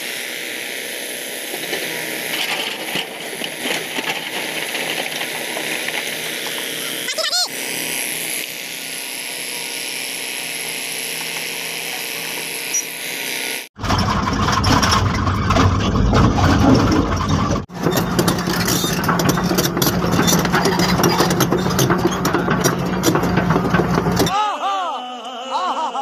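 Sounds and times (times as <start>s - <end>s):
rattling and clanking: 1.5s - 7.1s, 13.8s - 24.3s
excavator diesel engine running: 1.5s - 7.4s, 13.8s - 24.4s.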